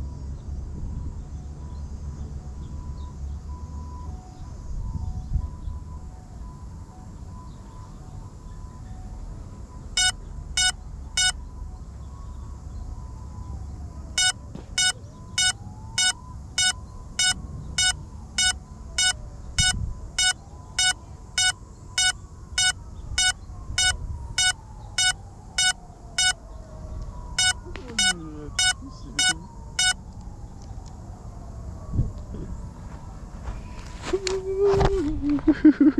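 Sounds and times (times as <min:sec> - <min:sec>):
drone beeper beeping: 0:09.9 - 0:11.5, 0:14.2 - 0:26.4, 0:27.4 - 0:30.0.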